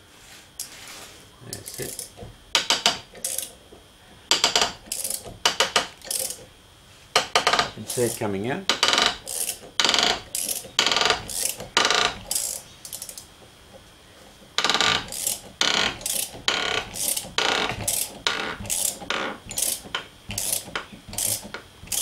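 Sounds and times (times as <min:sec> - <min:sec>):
socket ratchet clicking: 0:01.7 - 0:03.5, 0:04.3 - 0:06.4, 0:07.2 - 0:13.3, 0:14.6 - 0:22.0.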